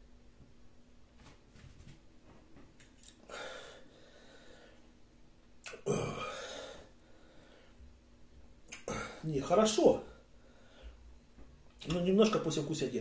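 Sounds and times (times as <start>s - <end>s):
man breathing out hard: 3.3s - 4.8s, 5.9s - 7.8s.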